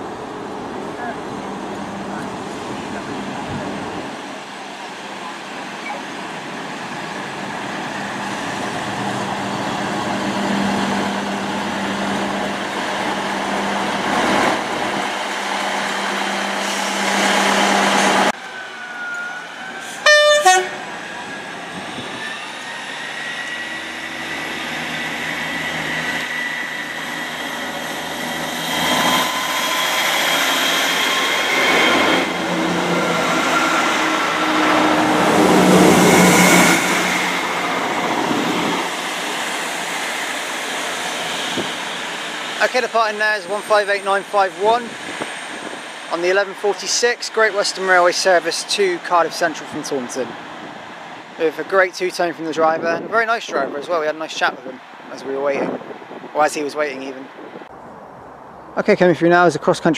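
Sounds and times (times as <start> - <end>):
diesel train engine drone: 0.0 - 51.9
rising engine whine: 7.2 - 42.6
train horn blast: 19.8 - 20.9.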